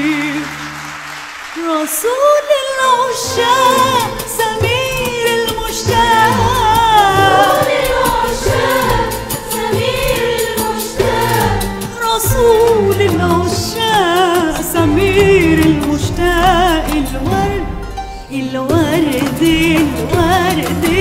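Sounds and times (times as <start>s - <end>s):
string and drum ensemble: 3.4s - 21.0s
women's choir singing: 5.4s - 12.8s
woman singing solo: 5.5s - 9.0s.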